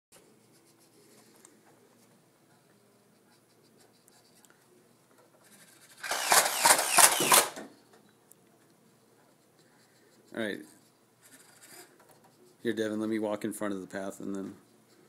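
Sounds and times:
toy blaster firing rapid clacks: 6.0s - 7.6s.

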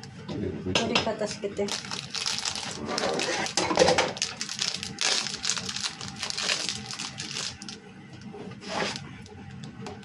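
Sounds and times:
kitchen things scraping: 2.5s - 4.2s, 8.5s - 9.1s.

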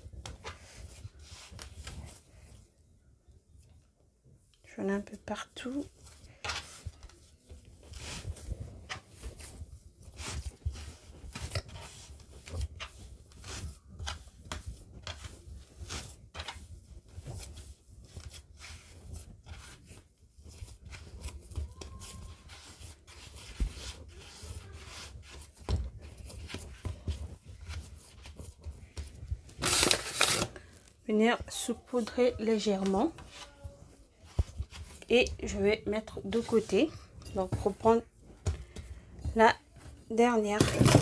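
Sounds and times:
dough rubbing scuffs: 5.8s - 30.4s.

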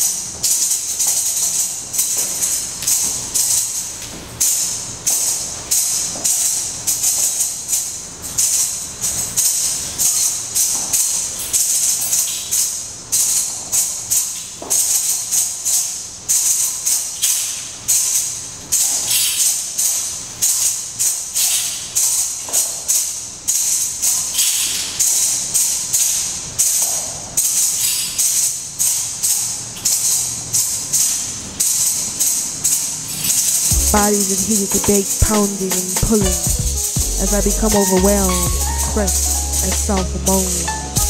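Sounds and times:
shaken hand percussion jingles: 33.4s - 41.0s.

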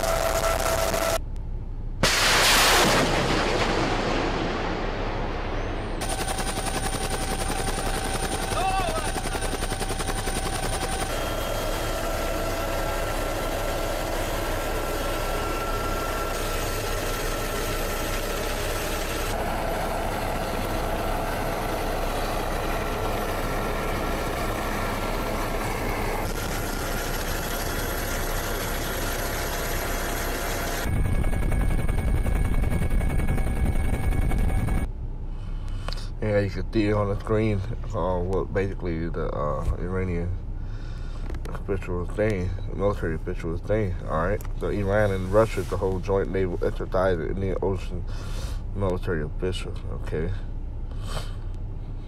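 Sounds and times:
engine drone: 0.0s - 52.0s
low rumble: 1.3s - 6.2s, 30.8s - 35.5s.

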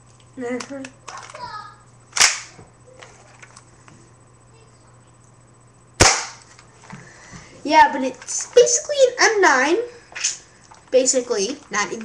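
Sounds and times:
plastic pistol clacks: 2.2s - 2.5s.

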